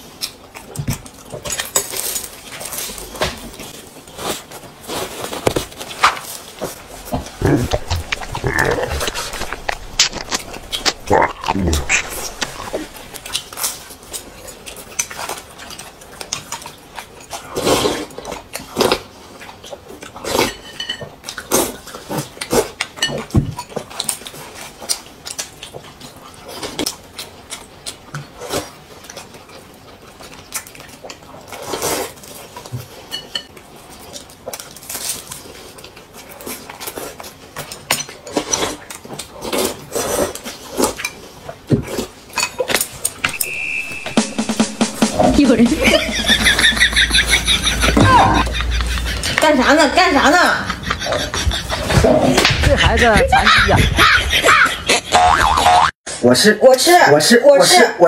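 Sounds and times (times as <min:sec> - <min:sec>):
chewing: 0:00.0 - 0:43.6, 0:47.2 - 0:53.0
slurping soup: 0:06.7 - 0:14.1.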